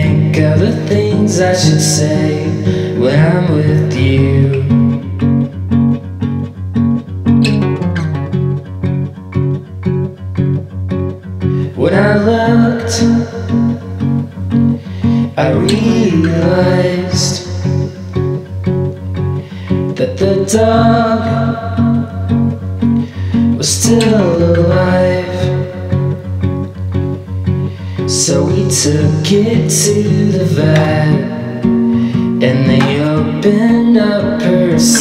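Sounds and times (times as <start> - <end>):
person singing: 0.0 - 5.2, 11.5 - 18.5, 19.4 - 26.4, 27.6 - 35.0
strummed acoustic guitar: 0.0 - 35.0.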